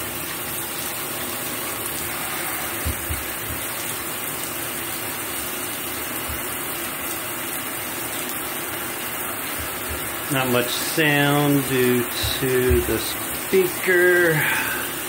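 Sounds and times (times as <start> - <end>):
shower water spraying: 0.0 - 15.0
dull low thumps: 9.4 - 10.3, 12.1 - 13.3.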